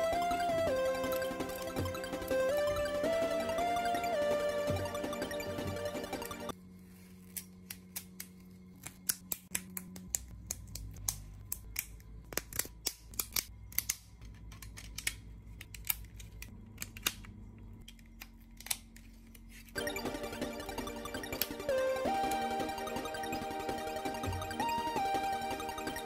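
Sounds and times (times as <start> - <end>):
plastic pieces clicking: 7.6 - 19.1.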